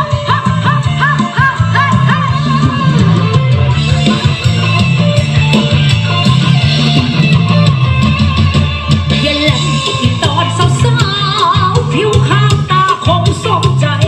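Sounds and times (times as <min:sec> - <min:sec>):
loud music with guitar and bass: 0:00.0 - 0:14.0.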